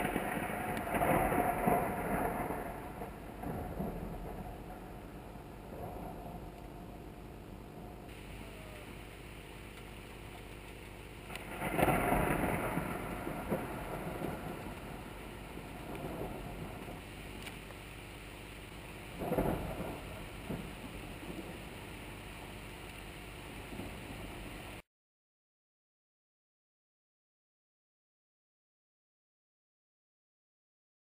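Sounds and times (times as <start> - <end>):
thunder clap and rumble: 0.0 - 8.3, 11.3 - 17.6, 18.6 - 22.2, 23.6 - 24.8
steady hiss: 0.0 - 24.8.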